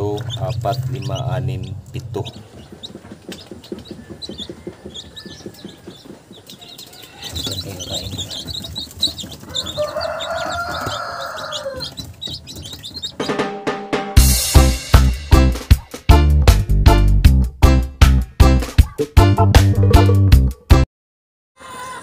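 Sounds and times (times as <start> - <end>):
chicks peeping: 0.0 - 13.9, 14.9 - 16.0, 18.4 - 19.1
music: 13.0 - 20.9.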